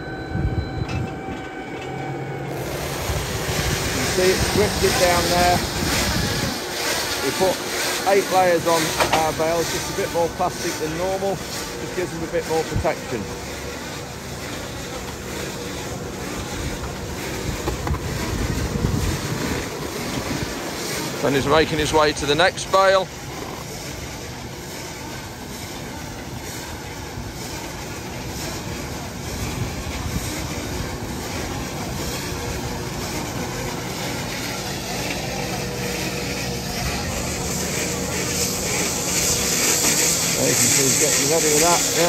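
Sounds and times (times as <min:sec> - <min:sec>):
tractor engine running: 0:00.0 - 0:42.0
wind buffeting microphone: 0:02.6 - 0:06.8, 0:16.5 - 0:20.8.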